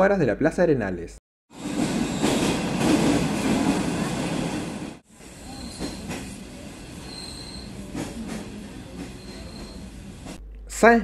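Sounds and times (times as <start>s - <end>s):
train rolling noise: 1.5s - 10.4s
train clunk: 1.6s - 10.4s
high-pitched wheel squeals: 5.3s - 6.3s, 7.0s - 7.9s, 9.0s - 10.0s.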